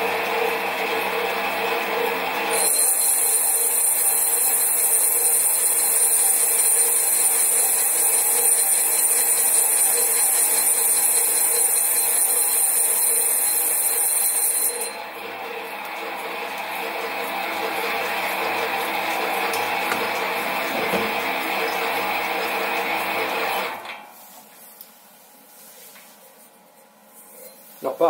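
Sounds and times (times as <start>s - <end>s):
lathe motor hum: 14.9s - 23.8s.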